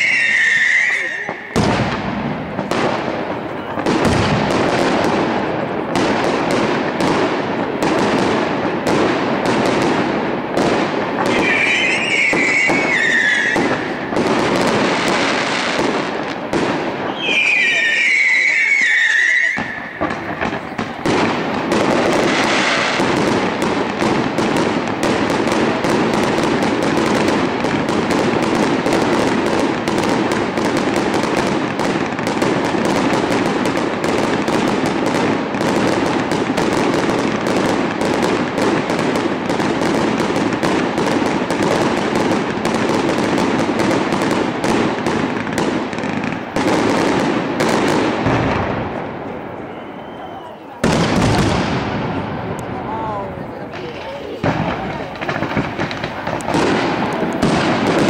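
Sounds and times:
fireworks bangs and crackling: 0:00.0 - 0:58.0.

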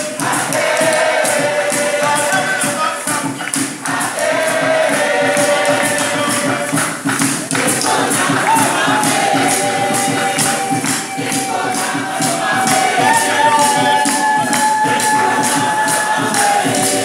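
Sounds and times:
shaken percussion beat: 0:00.0 - 0:17.0
person singing: 0:07.6 - 0:17.0.

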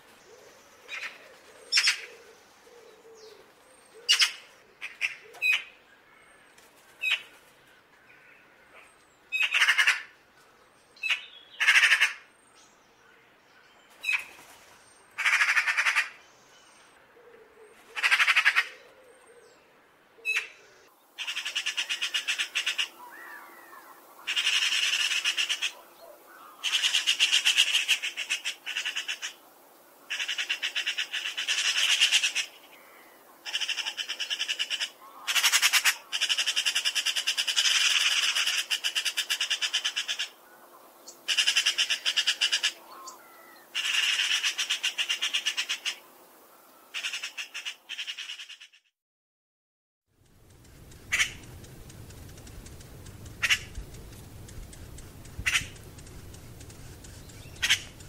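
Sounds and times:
magpie chattering: 0:24.3 - 0:25.7, 0:43.8 - 0:46.0, 0:50.7 - 0:58.0.

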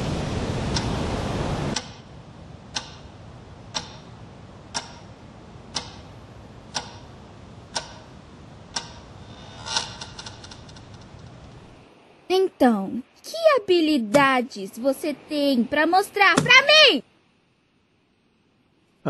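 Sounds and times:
clock ticking: 0:02.7 - 0:10.3.

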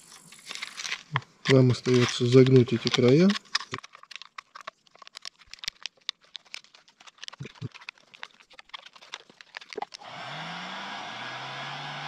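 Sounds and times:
plastic bottle crackling: 0:00.0 - 0:10.4
heat gun blowing air: 0:10.0 - 0:12.0.

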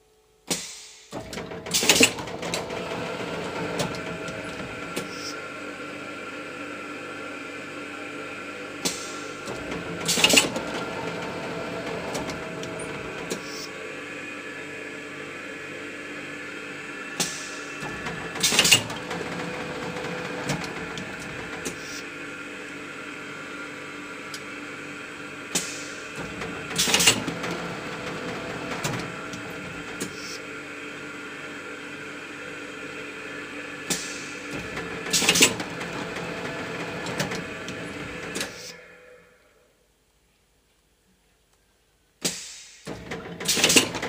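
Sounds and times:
machine humming: 0:01.2 - 0:39.8
air hissing: 0:13.3 - 0:13.8, 0:21.6 - 0:22.1, 0:25.5 - 0:27.2, 0:29.2 - 0:30.5
air blast: 0:42.2 - 0:42.9.

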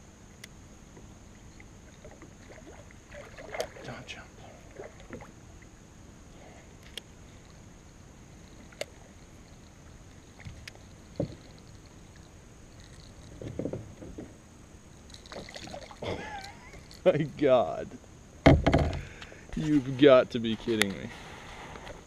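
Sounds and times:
light water lapping: 0:01.2 - 0:17.8
water splashing: 0:01.6 - 0:05.4, 0:15.1 - 0:16.9.

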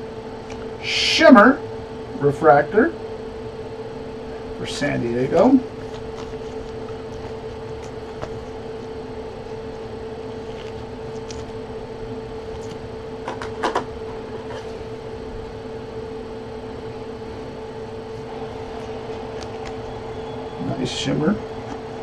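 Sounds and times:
steady mechanical hum: 0:00.0 - 0:22.0
trading cards being shuffled: 0:05.3 - 0:08.9, 0:10.4 - 0:11.6, 0:12.4 - 0:13.6, 0:18.2 - 0:22.0.

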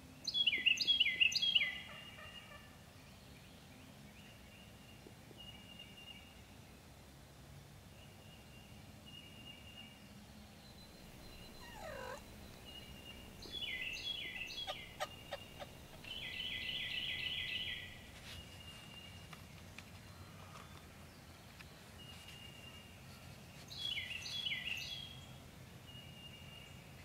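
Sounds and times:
songbirds singing: 0:00.2 - 0:06.5, 0:08.0 - 0:27.0
turkey gobbling: 0:11.1 - 0:18.0.

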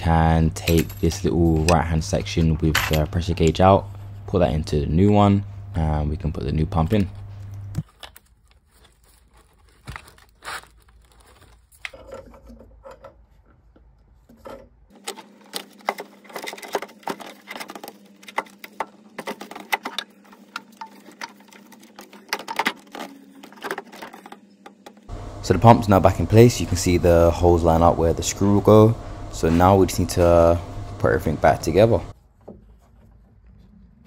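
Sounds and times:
plastic parts clicking and knocking: 0:11.8 - 0:25.1
faint steady hum: 0:14.4 - 0:32.2.

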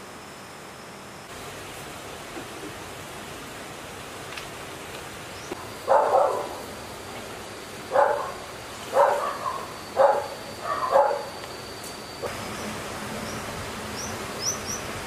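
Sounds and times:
dog barking: 0:05.9 - 0:06.7, 0:07.9 - 0:11.3.

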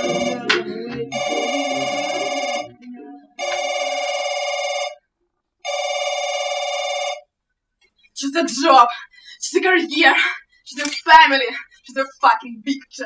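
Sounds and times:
telephone ringing: 0:00.0 - 0:02.8, 0:03.4 - 0:05.0, 0:05.6 - 0:07.3.

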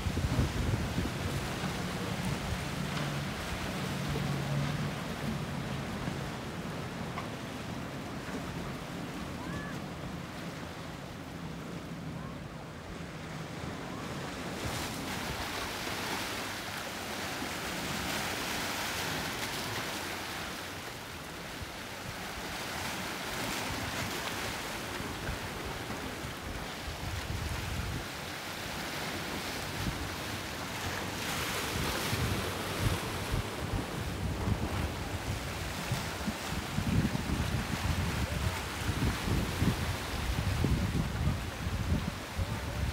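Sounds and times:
wind buffeting microphone: 0:00.0 - 0:02.6, 0:31.6 - 0:42.9
boat engine hum: 0:00.0 - 0:42.9.

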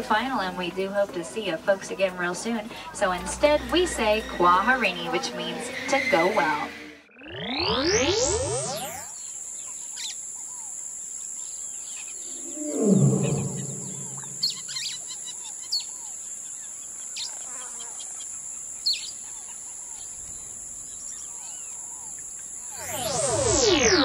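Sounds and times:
steady high hiss: 0:08.6 - 0:17.4
birds chirping: 0:08.7 - 0:24.0
low animal call: 0:12.2 - 0:15.0.

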